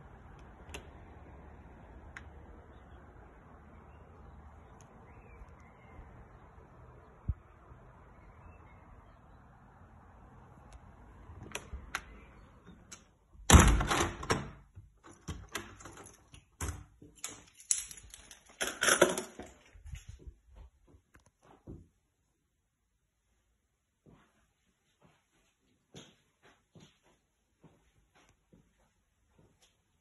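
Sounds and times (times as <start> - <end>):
lock clicks and clunks: 11.4 - 19.4
door closing thud: 13.5 - 14.6
keys jingling: 15.0 - 19.3.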